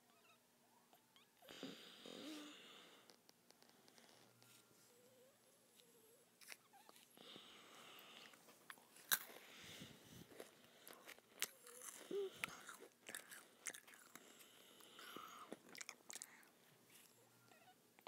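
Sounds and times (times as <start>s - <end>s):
person chewing crunchy food: 8.0s - 17.2s.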